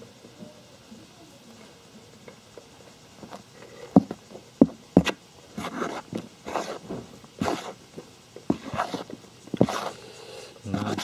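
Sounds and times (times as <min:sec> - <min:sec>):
trowel scraping through soil: 0:05.0 - 0:07.8, 0:08.5 - 0:11.0.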